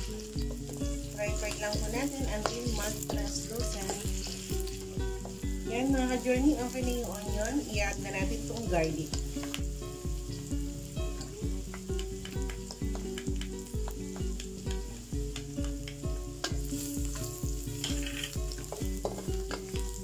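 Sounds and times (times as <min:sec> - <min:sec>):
wooden spatula stirring: 0:00.0 - 0:09.7
background music: 0:00.0 - 0:20.0
onion and garlic sizzling in oil: 0:00.0 - 0:20.0.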